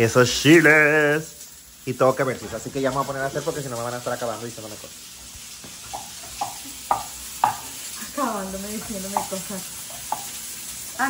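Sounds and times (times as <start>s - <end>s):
steady hiss: 0.0s - 11.0s
kitchen utensils tapping: 5.6s - 7.9s, 8.5s - 10.4s.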